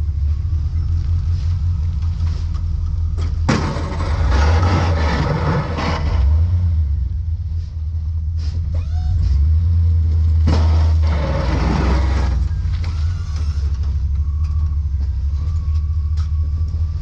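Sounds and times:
plow blade scraping snow: 0:00.0 - 0:02.8, 0:03.4 - 0:14.1
truck engine rumble: 0:00.0 - 0:17.0.

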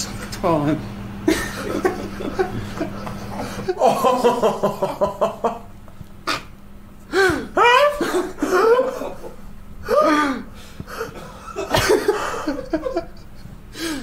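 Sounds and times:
man laughing: 0:01.2 - 0:05.7, 0:07.1 - 0:14.0.

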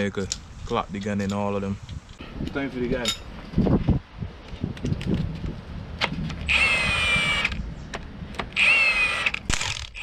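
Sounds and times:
impact gun whining: 0:08.5 - 0:10.0.

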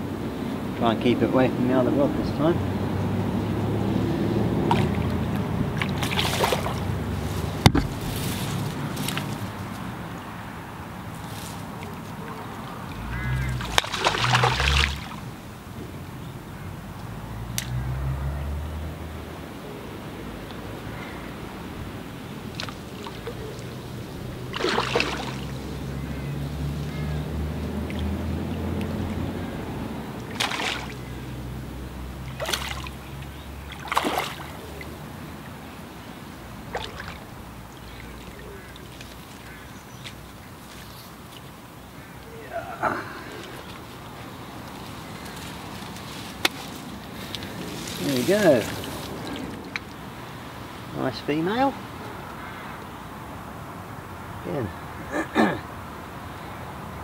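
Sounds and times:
fish splashing at surface: 0:05.8 - 0:06.9, 0:13.3 - 0:15.2, 0:24.5 - 0:25.6, 0:30.3 - 0:31.0, 0:32.3 - 0:33.0, 0:33.7 - 0:34.6.

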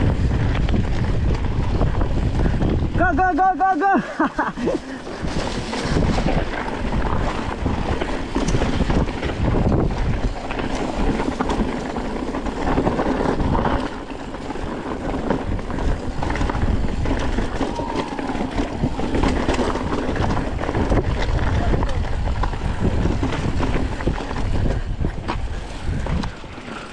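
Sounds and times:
wind on microphone: 0:00.0 - 0:03.5, 0:04.4 - 0:26.9
mountain bike rattling on dirt trail: 0:00.0 - 0:26.9.

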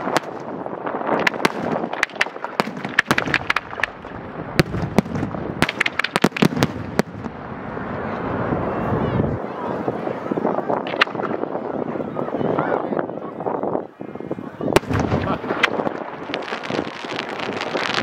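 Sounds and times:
fireworks bangs and crackles: 0:00.0 - 0:08.1, 0:10.6 - 0:11.8, 0:14.7 - 0:18.0
fireworks rumble: 0:00.0 - 0:18.0.

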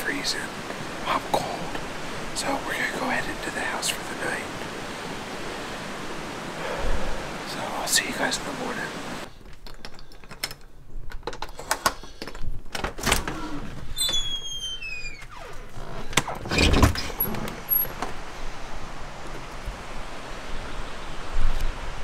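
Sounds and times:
door hinge squealing: 0:13.2 - 0:17.9.

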